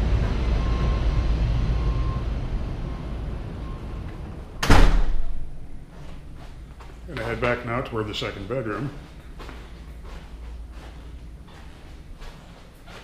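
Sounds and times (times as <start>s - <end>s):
low outdoor rumble: 0.0s - 13.0s
door slamming with rattle: 4.6s - 5.6s.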